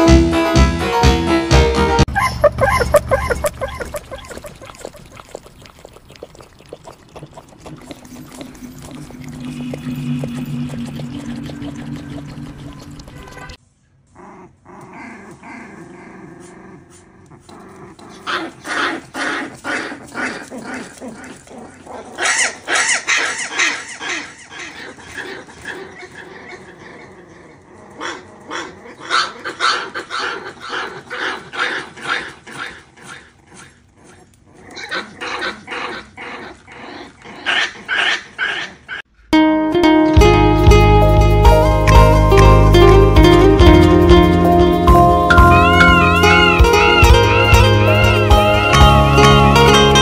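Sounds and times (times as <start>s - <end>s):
puppy barking and growling: 2.1s - 13.6s, 14.2s - 39.1s.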